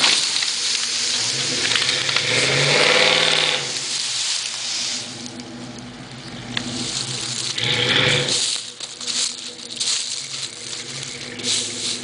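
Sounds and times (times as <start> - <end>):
vehicle engine revving: 0.0 - 12.0.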